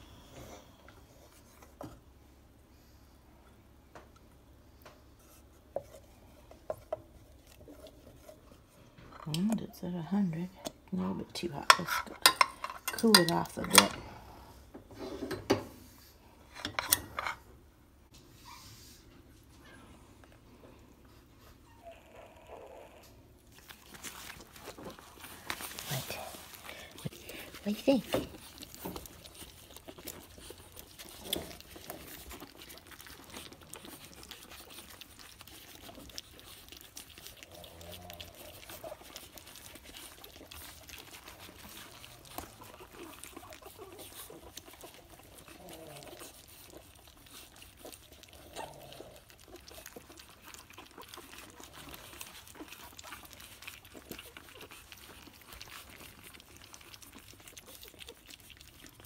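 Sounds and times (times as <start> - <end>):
puppies lapping wet food: 4.2 - 14.5, 23.3 - 59.0.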